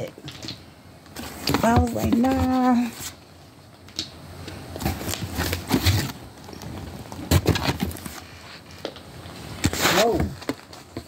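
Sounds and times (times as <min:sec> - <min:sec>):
rustling: 0:04.5 - 0:11.0.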